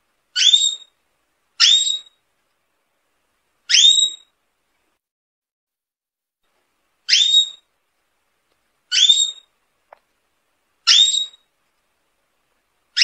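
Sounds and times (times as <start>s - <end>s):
canary whistle call: 0.4s - 0.9s, 1.6s - 2.2s, 3.7s - 4.3s, 7.1s - 7.6s, 8.9s - 9.5s, 10.9s - 11.4s.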